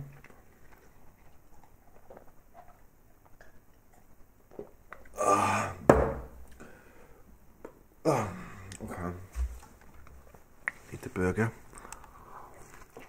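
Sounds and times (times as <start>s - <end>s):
man's throaty burp-like breath: 5.2s - 5.9s, 8.0s - 8.7s.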